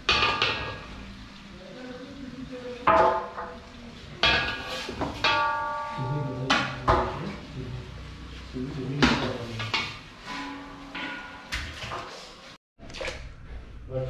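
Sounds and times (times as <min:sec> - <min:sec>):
metal ladle striking a pot: 0:00.0 - 0:01.0, 0:04.2 - 0:07.3, 0:09.0 - 0:12.0.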